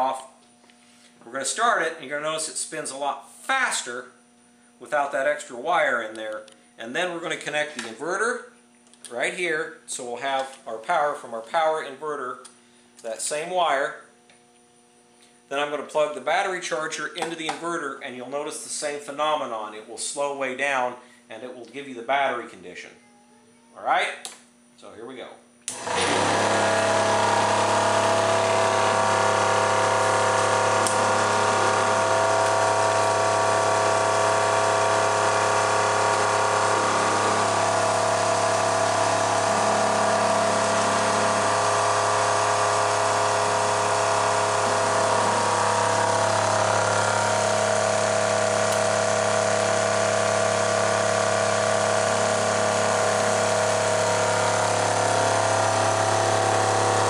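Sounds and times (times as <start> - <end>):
electric motor humming and whining: 25.7 - 57.0.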